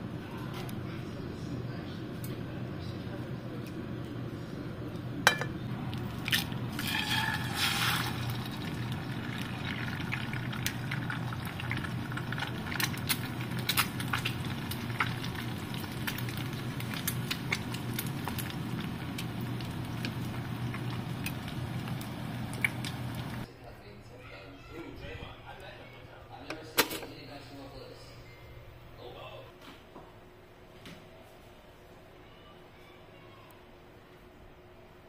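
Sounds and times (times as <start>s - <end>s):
egg sizzling in a pan: 6.7s - 23.5s.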